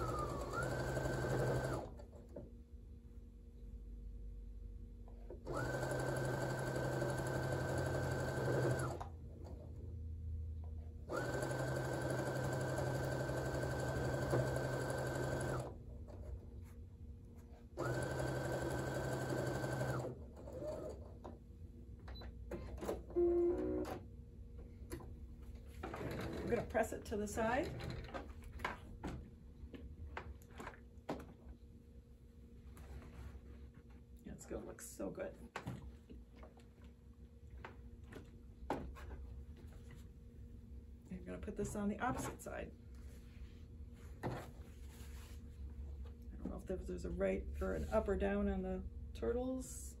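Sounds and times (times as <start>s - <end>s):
sewing machine stitching: 0.0s - 2.0s, 5.5s - 9.1s, 11.1s - 15.7s, 17.8s - 21.0s.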